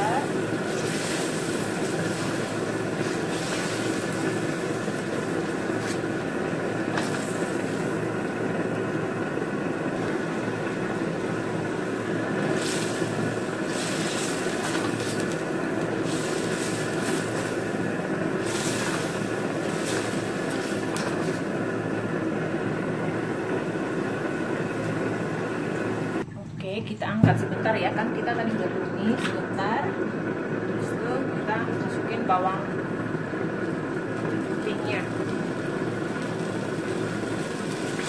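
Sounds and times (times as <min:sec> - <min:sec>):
meat sizzling in a wok: 0:00.0 - 0:26.1, 0:33.6 - 0:38.0
steady hum: 0:00.0 - 0:38.0.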